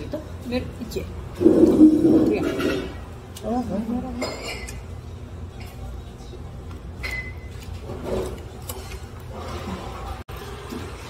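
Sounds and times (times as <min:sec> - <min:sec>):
forks clinking against plates: 0:04.1 - 0:05.9, 0:07.0 - 0:07.7.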